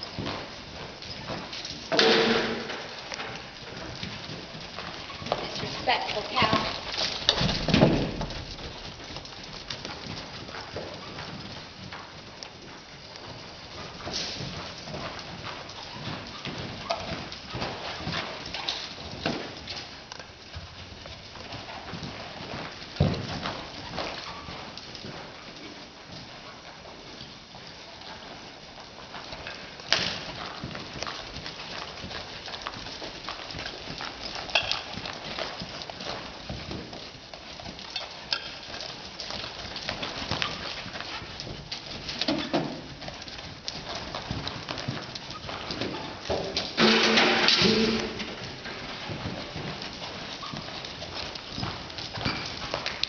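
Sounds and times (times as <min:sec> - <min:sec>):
hoofbeats on dirt: 0:00.0 - 0:53.0
sharp knock: 0:01.9 - 0:02.9.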